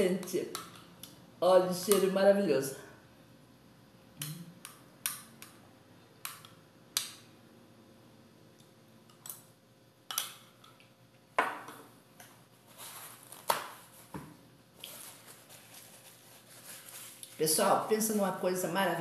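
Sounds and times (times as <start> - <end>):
paper napkin rustling: 12.6 - 14.1, 14.8 - 17.9.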